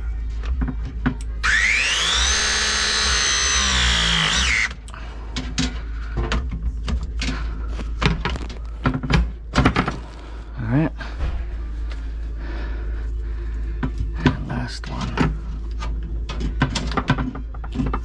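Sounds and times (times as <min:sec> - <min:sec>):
press tool motor whine: 0:01.4 - 0:04.8.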